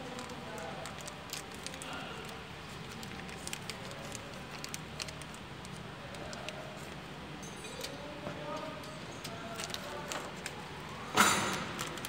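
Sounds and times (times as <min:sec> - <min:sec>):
plastic bag crinkling: 0:00.0 - 0:07.0, 0:09.2 - 0:12.0.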